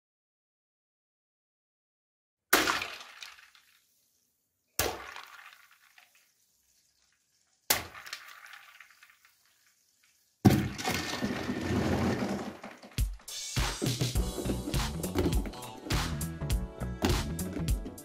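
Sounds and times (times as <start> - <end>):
soda splashing and fizzing: 2.5 - 13.0.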